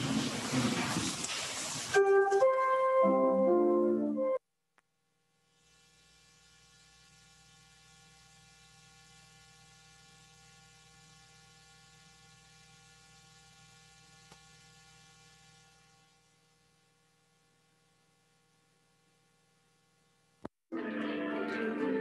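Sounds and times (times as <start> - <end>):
faint mains hum with hiss: 5.2 - 20.5.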